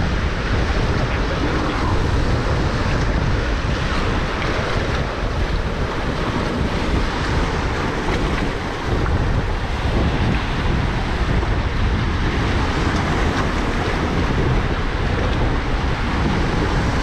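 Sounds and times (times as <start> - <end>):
sea surf washing among boulders: 0.0 - 17.0
wind buffeting microphone: 0.0 - 17.0.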